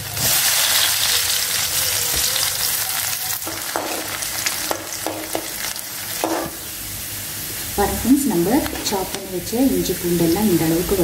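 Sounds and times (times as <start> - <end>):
oil sizzling loudly: 0.0 - 11.0
ladle knocking on pan: 3.4 - 5.6, 6.2 - 6.6.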